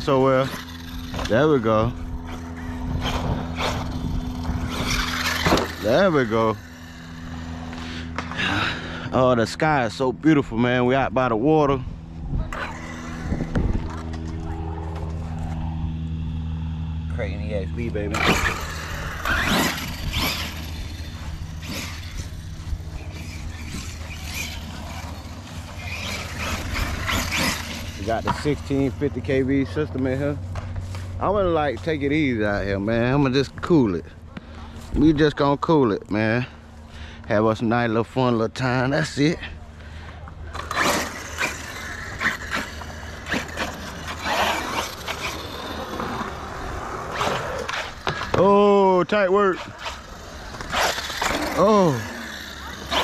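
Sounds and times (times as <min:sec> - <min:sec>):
rc truck motor surging: 0:00.0 - 0:10.0, 0:12.1 - 0:30.4, 0:40.3 - 0:53.0.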